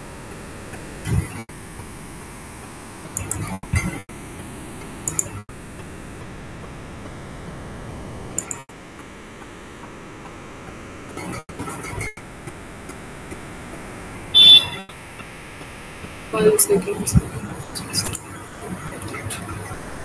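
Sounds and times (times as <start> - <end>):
video call line hiss: 15.8 - 20.0.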